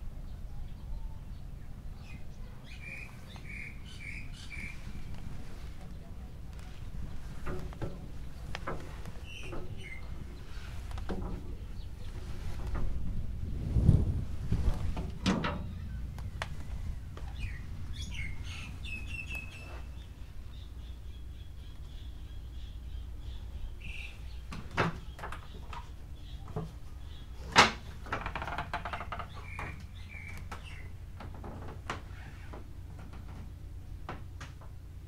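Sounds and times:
steady low rumble: 0:00.0 - 0:28.4
small birds chirping: 0:00.2 - 0:32.6
footsteps on metal deck: 0:03.0 - 0:21.0.

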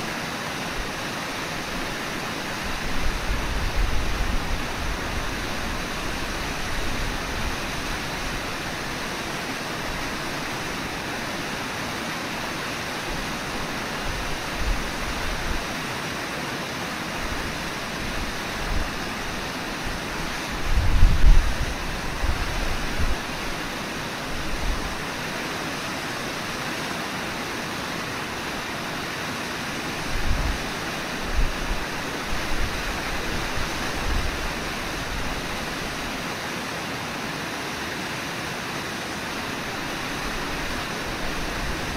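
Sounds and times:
river water rushing: 0:00.0 - 0:41.9
wind buffeting microphone: 0:02.6 - 0:08.6, 0:18.0 - 0:23.6, 0:30.0 - 0:35.8.

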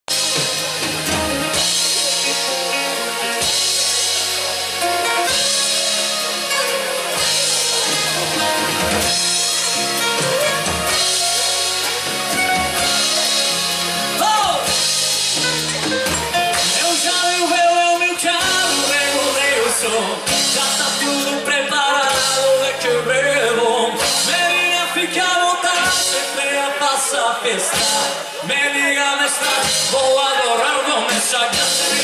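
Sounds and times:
live band playing: 0:00.0 - 0:32.0
cymbals: 0:00.1 - 0:21.4.

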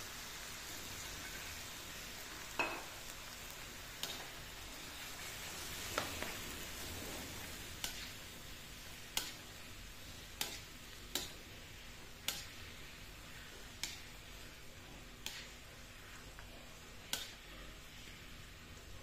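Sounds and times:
soft sizzle: 0:00.0 - 0:19.0
spatula scraping a wok: 0:05.8 - 0:08.4, 0:15.2 - 0:18.0.

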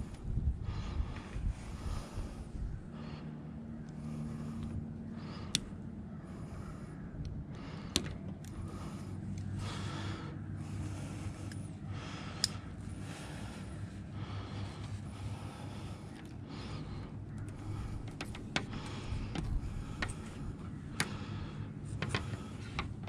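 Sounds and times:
breathing close to microphone: 0:00.0 - 0:23.0
steady low hum: 0:00.0 - 0:23.0
hand cutters snipping cable ties: 0:12.4 - 0:12.7.

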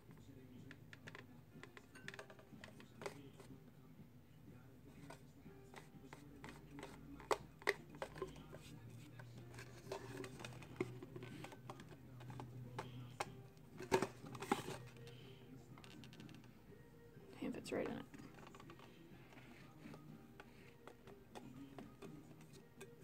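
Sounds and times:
plastic tumbler clicks and taps: 0:00.7 - 0:03.5, 0:05.0 - 0:15.0, 0:17.8 - 0:23.0.

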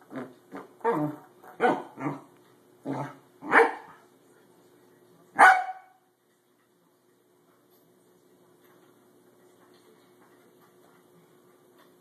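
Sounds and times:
dog barking: 0:03.4 - 0:04.0, 0:05.4 - 0:06.0.

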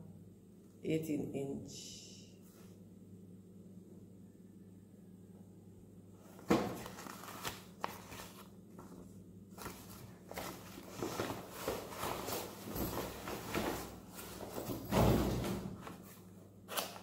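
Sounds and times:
paper and packaging rustling: 0:06.2 - 0:14.8.

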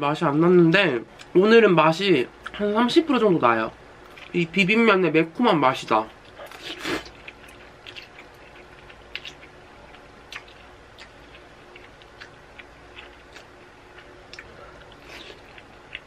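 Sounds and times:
person chewing noodles: 0:04.0 - 0:04.4, 0:06.2 - 0:16.0.

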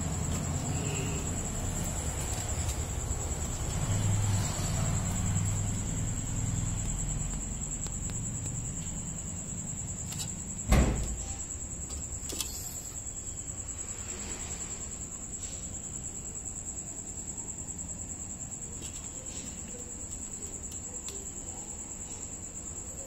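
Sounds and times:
sharp thump: 0:10.7 - 0:11.2.

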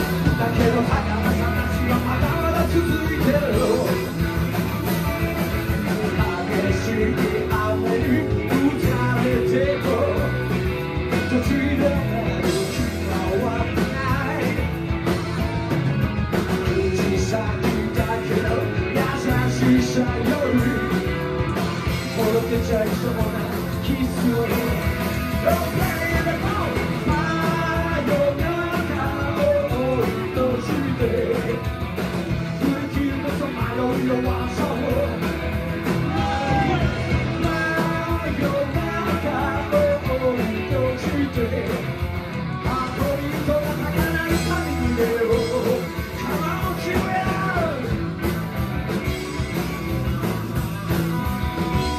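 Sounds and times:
drums: 0:00.0 - 0:51.9
electric guitars: 0:00.0 - 0:51.9
rock and roll band playing: 0:00.0 - 0:51.9
upright double bass: 0:00.0 - 0:51.9.

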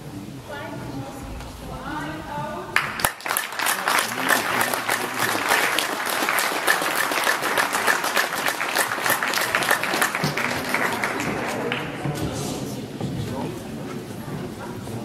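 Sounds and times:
audience applauding: 0:02.8 - 0:12.3.

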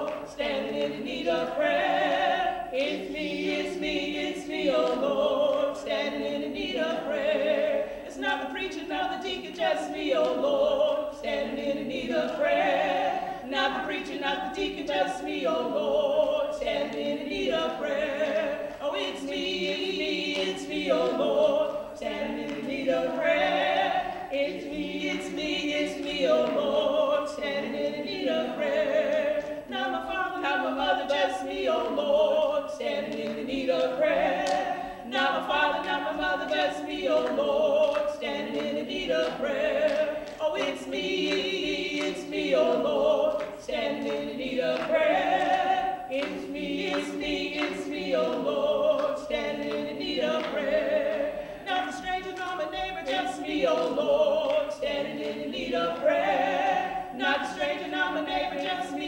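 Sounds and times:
hand claps: 0:00.0 - 0:00.8, 0:18.7 - 0:21.3, 0:24.5 - 0:26.8, 0:33.0 - 0:34.8, 0:35.4 - 0:51.2
women singing gospel: 0:00.0 - 0:59.0.

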